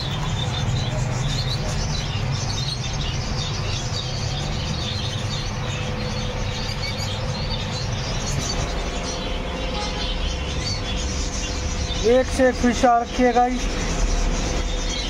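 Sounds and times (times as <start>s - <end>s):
constant low hum: 0.0s - 15.0s
small birds chirping: 0.0s - 15.0s.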